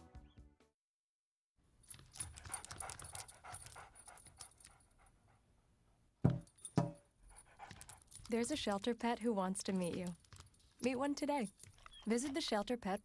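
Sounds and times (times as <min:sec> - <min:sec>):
dog panting: 0:02.2 - 0:05.7, 0:07.2 - 0:09.0
short thumps: 0:06.2 - 0:07.0.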